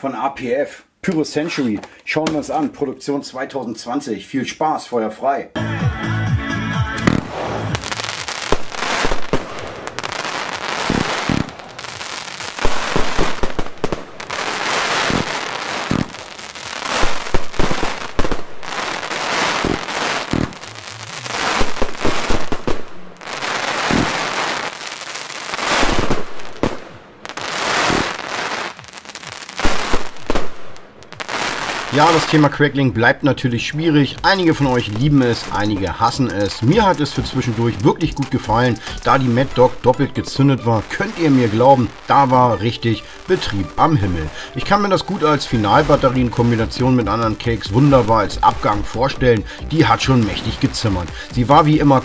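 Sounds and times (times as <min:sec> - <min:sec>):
firework crackling: 0:06.9 - 0:32.8, 0:33.4 - 0:52.0
firework launch thumps: 0:07.0 - 0:10.1, 0:10.8 - 0:11.6, 0:15.0 - 0:16.2, 0:19.6 - 0:20.7, 0:23.8 - 0:24.3.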